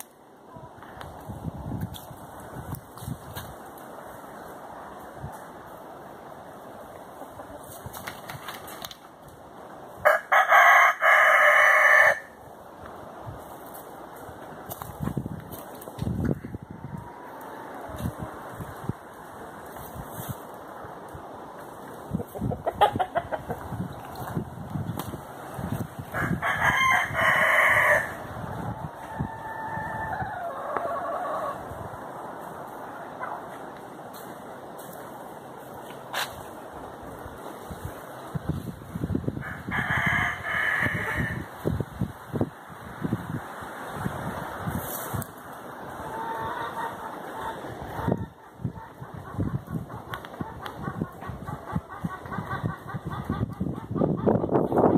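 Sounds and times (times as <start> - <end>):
rooster crowing: 10.0 - 12.4, 26.1 - 28.3, 29.0 - 31.6, 39.4 - 41.4.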